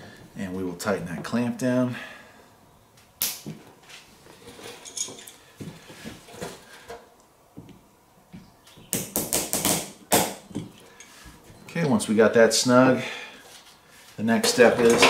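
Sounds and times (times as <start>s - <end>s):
hand tools clicking and knocking: 14.4s - 15.0s.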